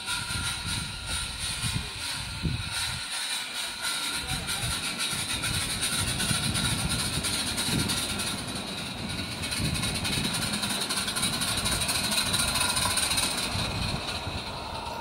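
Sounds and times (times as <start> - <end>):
model train wheels rumbling: 0.0 - 15.0
steam hissing: 0.0 - 15.0.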